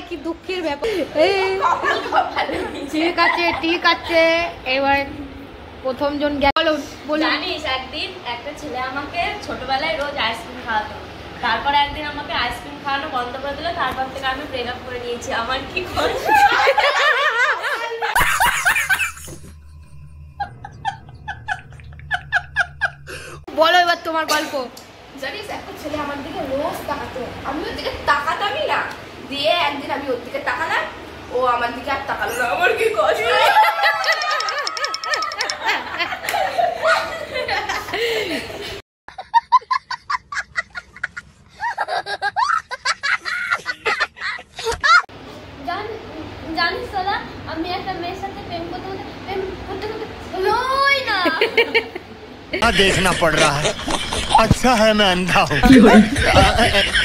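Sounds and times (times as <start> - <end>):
people laughing: 16.0 - 19.6, 20.4 - 23.4, 33.0 - 45.0, 51.3 - 57.0
man laughing rhythmically: 18.1 - 19.4, 20.4 - 23.4, 39.1 - 45.0, 52.6 - 57.0.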